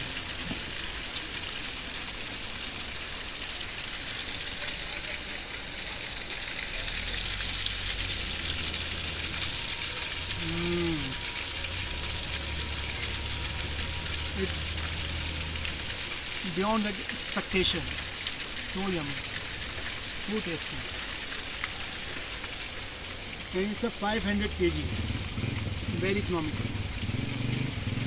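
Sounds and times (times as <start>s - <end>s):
waterfall rushing: 0.0s - 28.0s
man murmuring: 10.4s - 11.2s.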